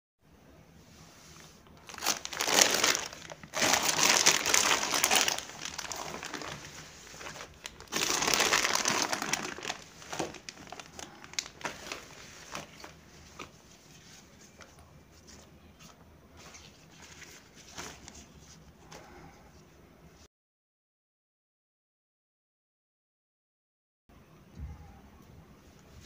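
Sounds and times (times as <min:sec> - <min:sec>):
balloons rustling: 0:01.6 - 0:15.4
plastic packet crinkling: 0:01.8 - 0:13.5.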